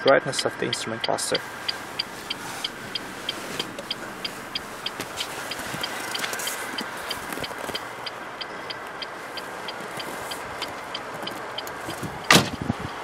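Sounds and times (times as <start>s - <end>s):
rapid electronic ticking: 0.0s - 13.0s
car door slamming: 12.0s - 12.7s.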